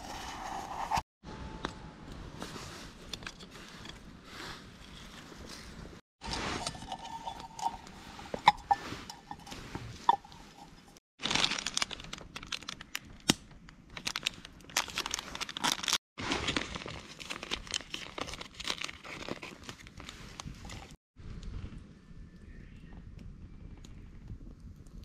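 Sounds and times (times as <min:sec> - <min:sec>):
sachet crinkling and tearing: 0:11.2 - 0:13.0, 0:13.9 - 0:20.9
paper filter spread open: 0:14.0 - 0:21.0.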